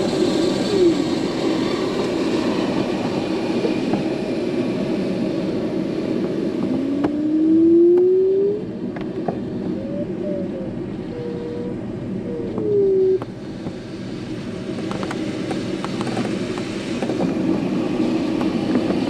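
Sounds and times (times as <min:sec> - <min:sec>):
airflow rushing over glider canopy: 0:00.0 - 0:19.0
rising tone: 0:06.7 - 0:08.8, 0:09.8 - 0:13.3.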